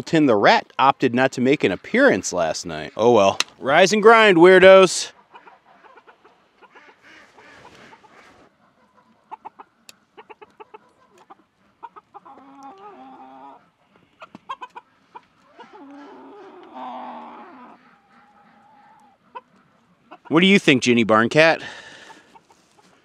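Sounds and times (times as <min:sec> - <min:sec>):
chickens clucking softly: 0:05.0 - 0:20.4, 0:22.0 - 0:23.0.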